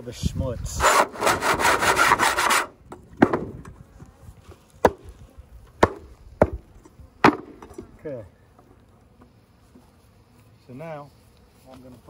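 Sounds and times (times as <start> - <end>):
metal tool scraping wood: 0.7 - 2.7.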